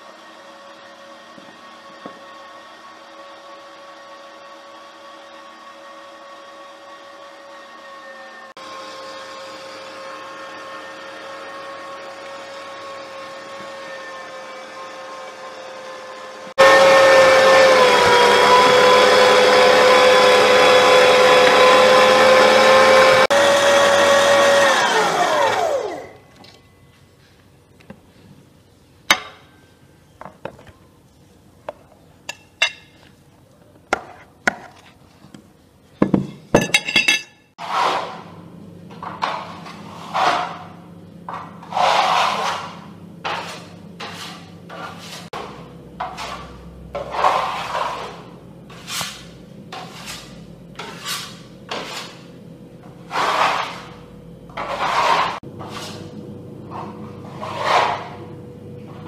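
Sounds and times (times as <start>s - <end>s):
noisy kitchen strokes: 0.0s - 59.0s.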